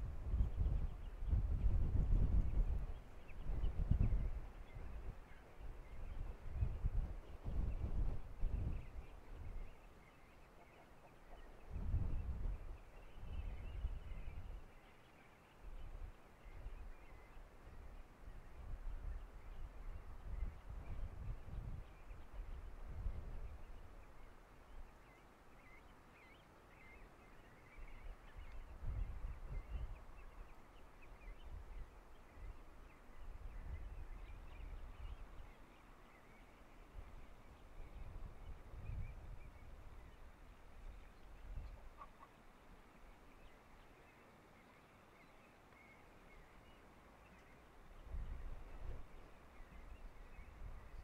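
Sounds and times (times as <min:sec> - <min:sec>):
wind gusting on microphone: 0:00.0 - 0:09.9, 0:11.6 - 0:14.8, 0:15.7 - 0:24.0, 0:27.6 - 0:30.5, 0:31.2 - 0:35.6, 0:36.8 - 0:42.0, 0:47.9 - 0:51.0
faint bird calls: 0:08.8 - 0:11.8, 0:23.4 - 0:51.0.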